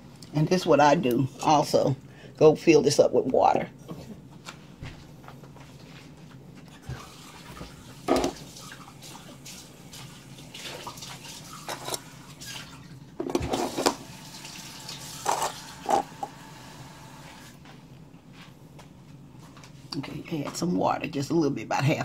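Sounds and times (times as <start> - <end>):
tap running water: 6.8 - 17.6
dishes and utensils clinking: 11.6 - 12.0.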